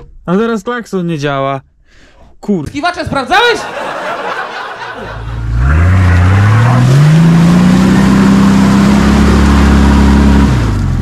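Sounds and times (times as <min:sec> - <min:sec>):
car engine revving: 0:05.0 - 0:11.0.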